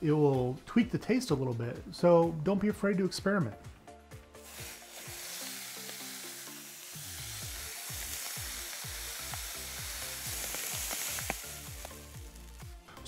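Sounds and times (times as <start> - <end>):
pot simmering and sizzling: 4.4 - 12.9
music with bass beat: 7.4 - 13.0.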